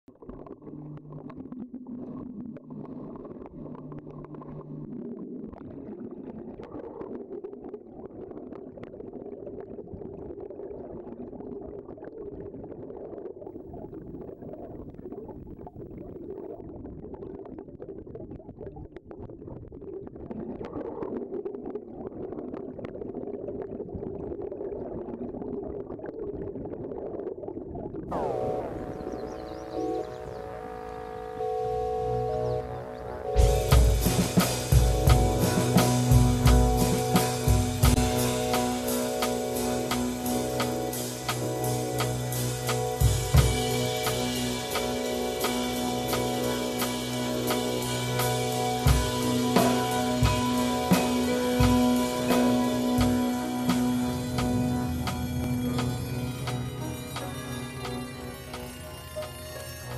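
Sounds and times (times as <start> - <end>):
small clicks and gurgles: 0.1 - 28.1
low hum: 28.1 - 59.9
music: 28.1 - 59.9.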